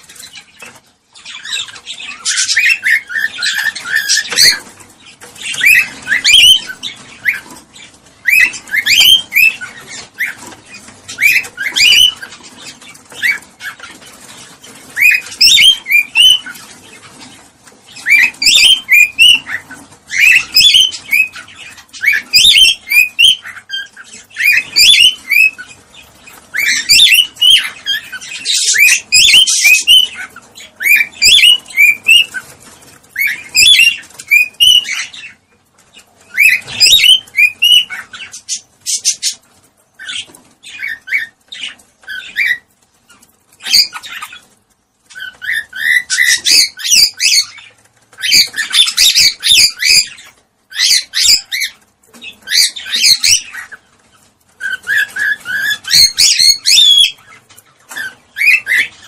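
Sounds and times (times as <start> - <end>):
cockatiels chirping: 0.0 - 59.0.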